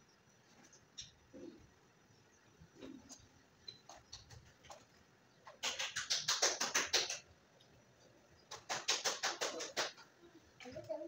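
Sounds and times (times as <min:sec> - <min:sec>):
parrot rapid clicking: 0:05.4 - 0:07.3, 0:08.5 - 0:10.1.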